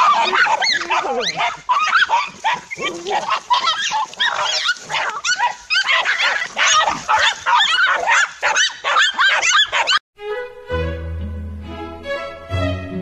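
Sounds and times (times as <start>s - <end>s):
dogs barking and yelping in fight: 0.0s - 10.0s.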